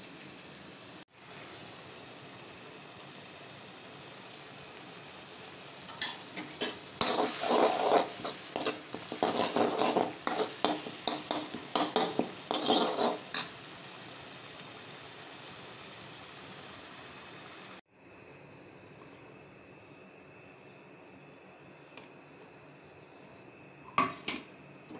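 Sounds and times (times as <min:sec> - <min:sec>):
spices sizzling in hot oil: 0:00.0 - 0:17.8
ladle scraping metal pot: 0:06.0 - 0:13.5.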